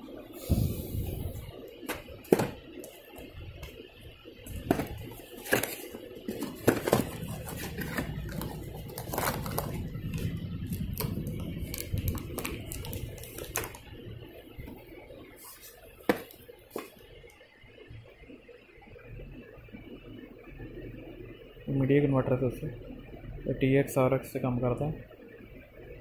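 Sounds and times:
low steady hum: 0:00.0 - 0:26.0
objects knocking on shelves: 0:01.9 - 0:02.6, 0:04.5 - 0:08.5.

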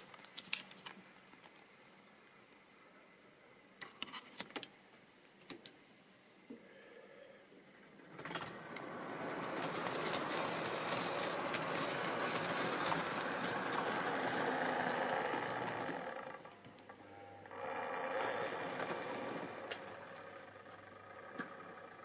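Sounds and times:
model train rattling past: 0:08.0 - 0:16.6, 0:17.5 - 0:22.0
clicks over track joints: 0:08.1 - 0:16.8.

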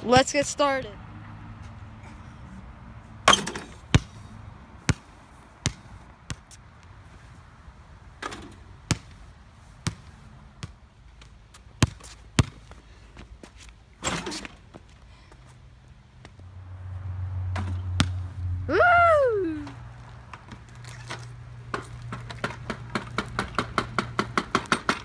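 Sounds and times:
basketball bouncing on concrete: 0:03.3 - 0:04.2, 0:04.8 - 0:06.6, 0:08.9 - 0:09.2, 0:09.8 - 0:12.8, 0:21.7 - 0:25.0.

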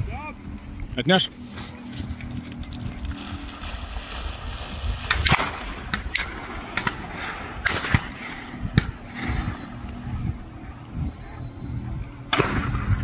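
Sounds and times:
shotgun shots: 0:05.2 - 0:09.5, 0:12.3 - 0:13.0.

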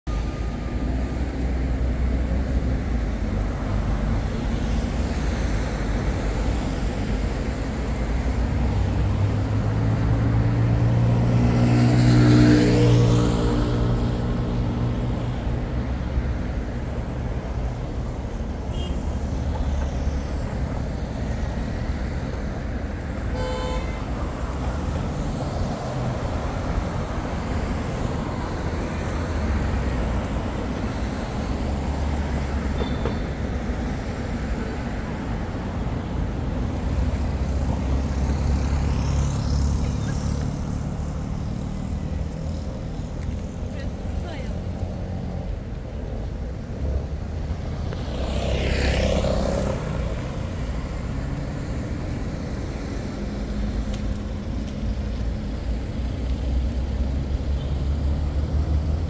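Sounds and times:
city road traffic: 0:00.0 - 0:59.0
vehicle engine drone passing: 0:08.8 - 0:15.6.

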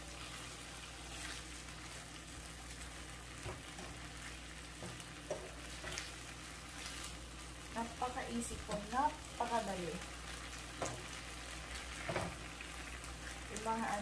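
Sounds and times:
food sizzling in a frying pan: 0:00.0 - 0:14.0.

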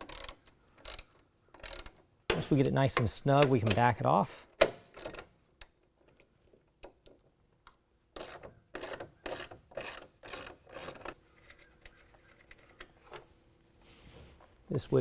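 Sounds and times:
socket ratchet clicking: 0:00.0 - 0:02.0.

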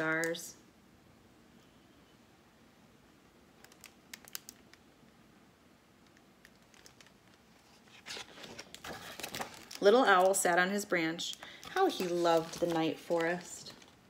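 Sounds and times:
page turning rustle: 0:06.5 - 0:10.4, 0:11.6 - 0:14.0.

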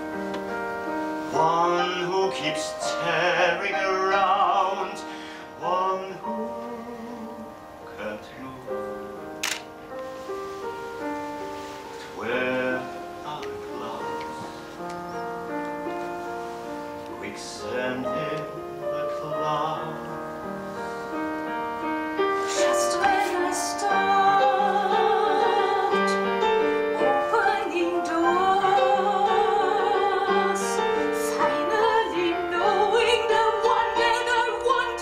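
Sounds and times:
piano accompaniment: 0:00.0 - 0:35.0
woman singing opera: 0:22.4 - 0:35.0.

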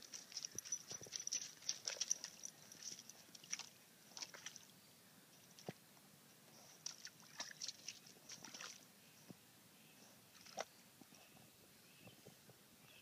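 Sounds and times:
paws splashing in shallow water: 0:00.0 - 0:04.7, 0:06.6 - 0:08.9, 0:10.3 - 0:10.7.

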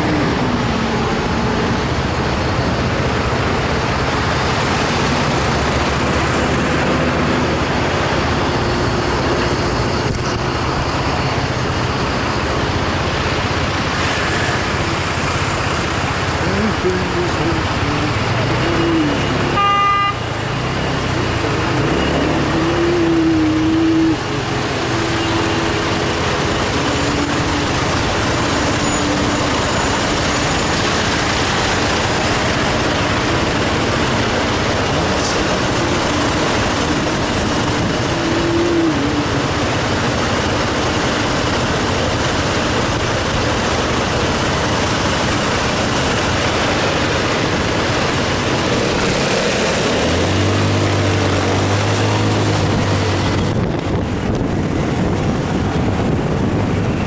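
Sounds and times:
scooter engine hum: 0:10.3 - 0:57.0
wind noise on microphone: 0:50.3 - 0:57.0.

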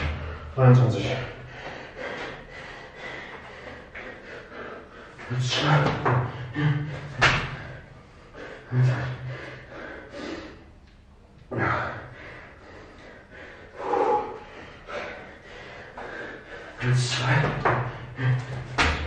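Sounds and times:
hard noisy breathing: 0:00.0 - 0:19.0
thuds of landing on floor: 0:17.3 - 0:19.0.

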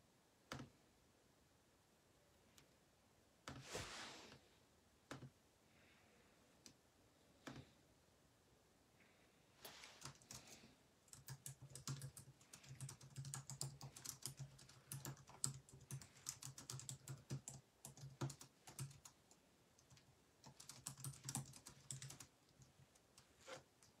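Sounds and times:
faint keyboard typing: 0:00.5 - 0:00.8, 0:07.4 - 0:07.8, 0:09.6 - 0:24.0.

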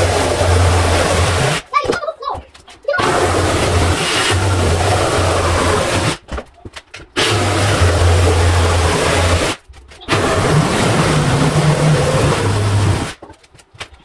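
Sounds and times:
power saw cutting wood: 0:00.0 - 0:01.7, 0:03.0 - 0:06.2, 0:07.2 - 0:13.2.

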